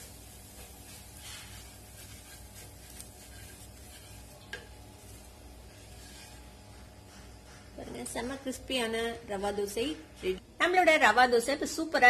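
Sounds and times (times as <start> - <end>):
oil sizzling: 0.0 - 7.4
wooden spatula scraping pan: 0.0 - 8.6.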